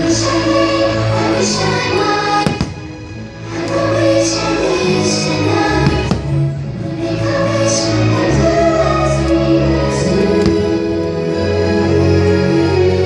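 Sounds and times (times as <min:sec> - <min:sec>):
choir singing held notes: 0:00.0 - 0:13.0
firework bang: 0:02.4 - 0:02.9.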